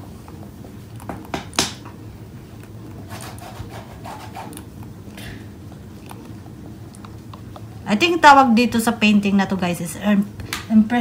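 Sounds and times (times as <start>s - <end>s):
palette knife scraping paint: 3.0s - 4.6s.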